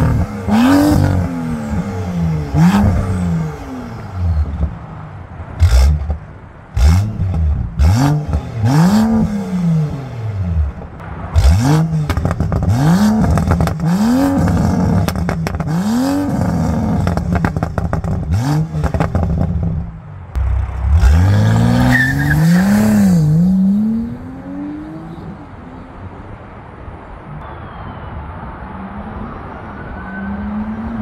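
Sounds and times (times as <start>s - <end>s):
car engine revving: 0.0s - 26.0s
exhaust crackling pops: 10.7s - 15.7s.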